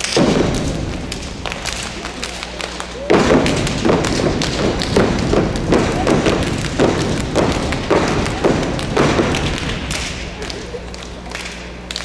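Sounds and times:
hands clapping: 0:00.0 - 0:12.0
stomping feet: 0:00.0 - 0:12.0.

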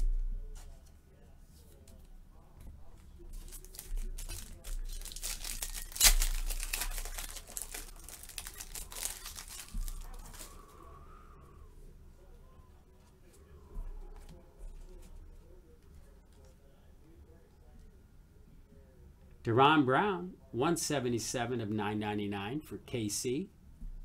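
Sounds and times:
foil wrapper crackling and crinkling: 0:03.3 - 0:10.9.

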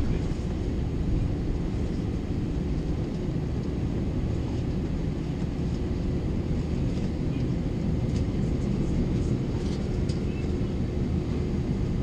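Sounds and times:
jet engines low rumble: 0:00.0 - 0:12.0.

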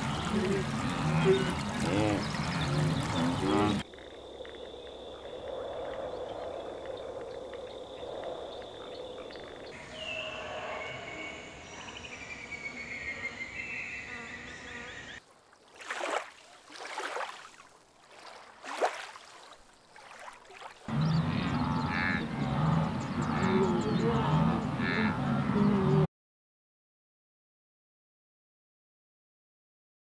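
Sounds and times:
insect-like drone: 0:00.0 - 0:16.2.

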